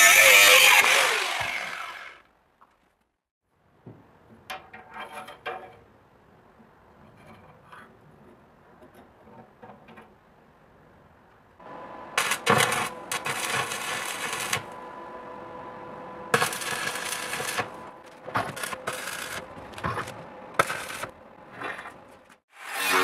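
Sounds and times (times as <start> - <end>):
steady hum: 11.6 - 22.1
arc welding crackling: 12.2 - 14.9, 16.3 - 21.2.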